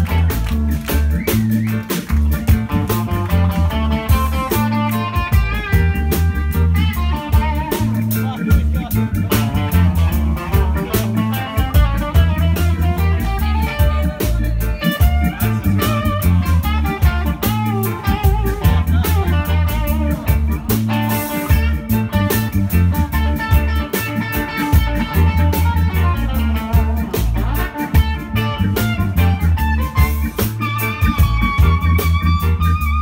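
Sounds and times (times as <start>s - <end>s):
drum strokes: 0.0s - 33.0s
live band playing upbeat song: 0.0s - 33.0s
trombone: 0.0s - 33.0s.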